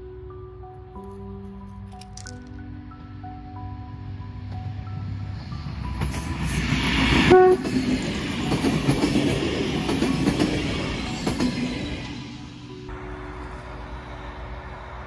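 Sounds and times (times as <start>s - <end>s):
train horn blast: 7.2s - 7.8s.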